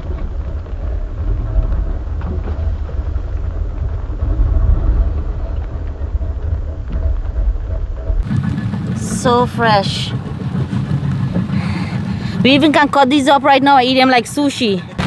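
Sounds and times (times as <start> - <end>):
outboard motor rumbling: 0.0 - 15.0.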